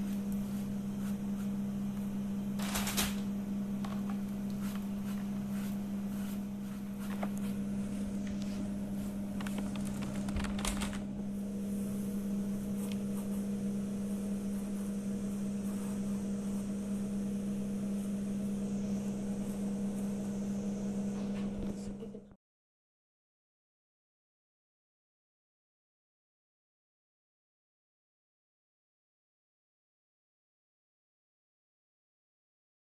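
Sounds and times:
steady low hum: 0.0s - 22.4s.

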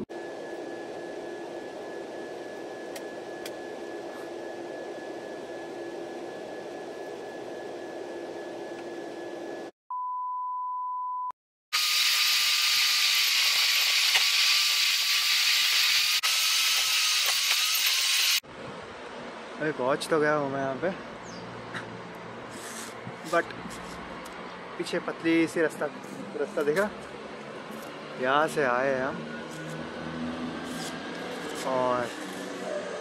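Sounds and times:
airliner cabin hum: 0.0s - 9.7s
faint wavering whine: 0.1s - 9.8s
road and wind noise: 18.4s - 33.0s.

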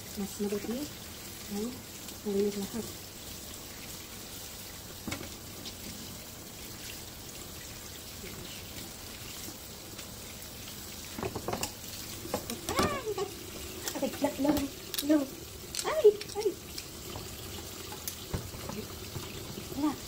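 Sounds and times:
tap running into steel sink: 5.0s - 5.4s, 11.1s - 20.0s.

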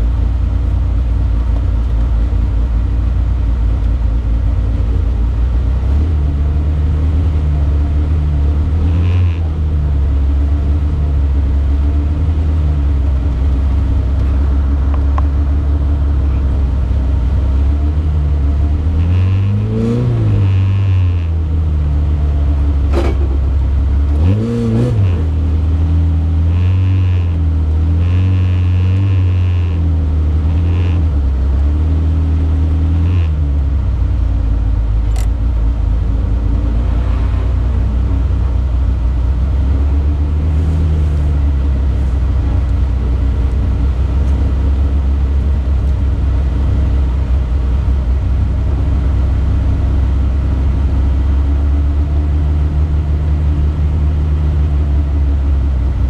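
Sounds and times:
car engine idling: 0.0s - 19.0s, 21.3s - 26.6s, 27.2s - 56.0s
sharp click: 35.1s - 35.4s.

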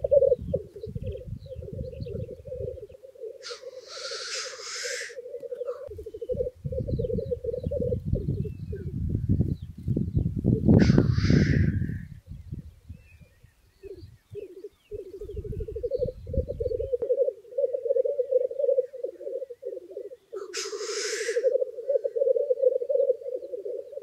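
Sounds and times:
grouse bubbling coo: 0.0s - 8.9s, 13.8s - 24.0s
grouse hissing call: 2.4s - 6.5s, 10.8s - 12.1s, 16.9s - 24.0s.

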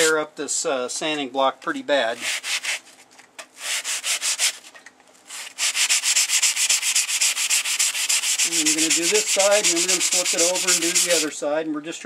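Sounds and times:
sanding block rubbing on saw blade: 2.2s - 2.8s, 3.6s - 4.6s, 5.3s - 11.3s.

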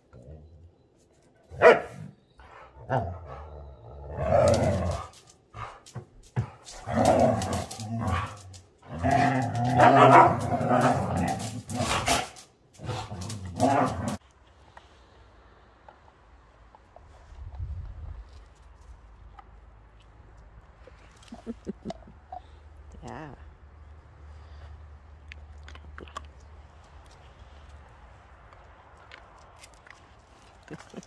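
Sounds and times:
dogs barking and growling: 1.4s - 14.2s.

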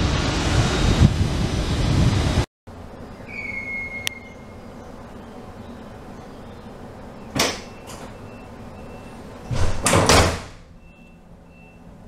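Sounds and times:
folding door clacking shut: 7.3s - 8.2s, 9.4s - 10.7s
door panels clattering with thuds: 9.5s - 10.7s.

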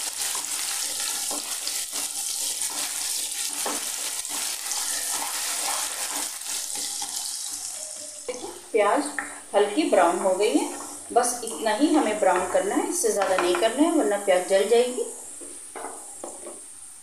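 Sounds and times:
onions sizzling in oil: 0.0s - 8.6s
spatula scraping pan: 0.1s - 8.2s.

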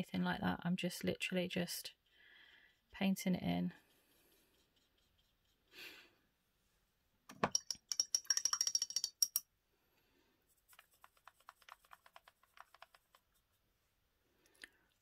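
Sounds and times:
brush ticking in paint pan: 3.8s - 5.7s, 7.5s - 9.4s, 10.6s - 13.5s
paintbrush clinking against water pot: 7.5s - 9.5s.

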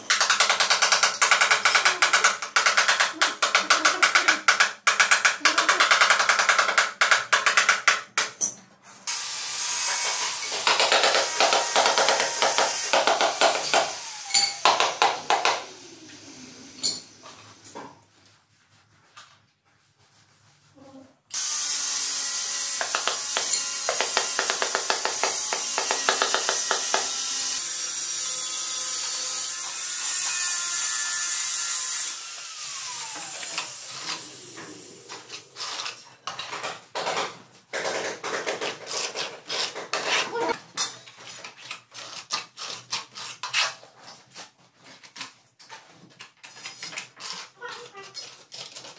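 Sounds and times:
trowel scraping adhesive: 22.6s - 27.6s, 33.4s - 36.6s, 37.9s - 48.9s
sharp taps and knocks: 22.7s - 27.2s.

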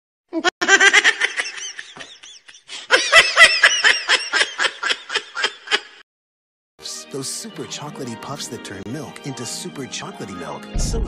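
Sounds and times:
high-pitched laughter: 0.4s - 6.0s.

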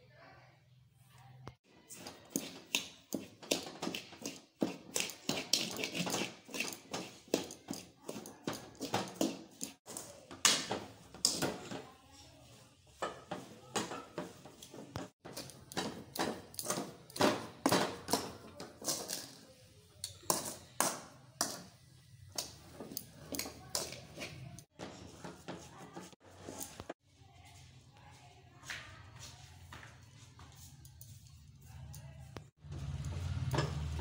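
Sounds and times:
metal spoon scraping metal pan: 1.9s - 10.0s.

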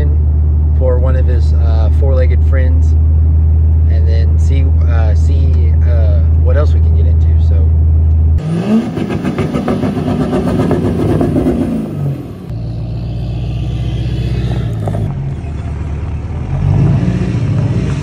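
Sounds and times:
diesel truck engine revving: 7.7s - 18.0s.

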